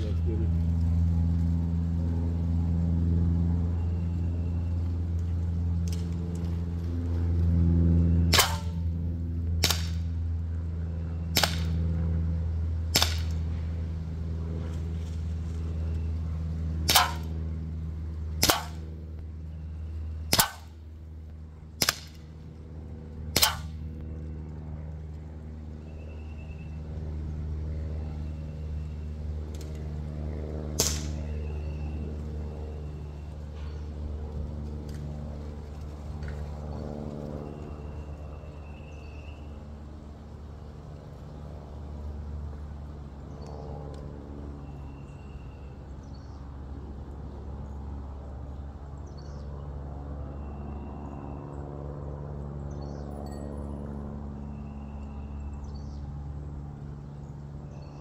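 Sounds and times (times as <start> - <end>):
steady low hum: 0.0 - 58.0
bb pistol shots: 8.3 - 8.8, 9.6 - 10.1, 11.3 - 11.8, 12.9 - 13.4, 16.8 - 17.3, 18.4 - 18.8, 20.3 - 20.7, 21.8 - 22.2, 23.3 - 23.8, 30.8 - 31.2.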